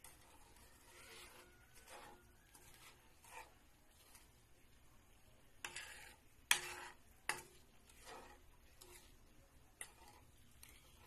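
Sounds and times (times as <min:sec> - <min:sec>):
spatula scraping and knocking pan: 0:00.0 - 0:04.7, 0:05.6 - 0:11.0
faint oil sizzle: 0:00.0 - 0:11.0
spatula stirring in wok: 0:00.0 - 0:11.0.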